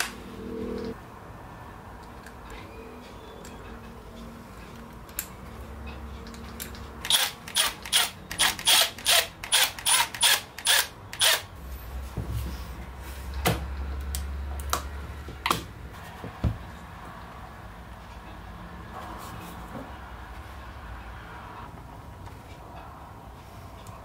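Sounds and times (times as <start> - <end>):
low steady hum: 0.0 - 7.0
impact driver driving screws: 7.0 - 11.5.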